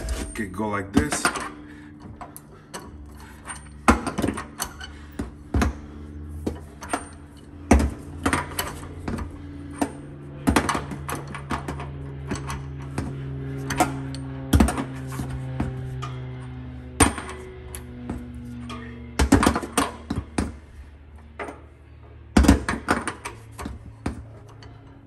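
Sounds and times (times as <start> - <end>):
ratchet clanking on metal: 1.1 - 5.2.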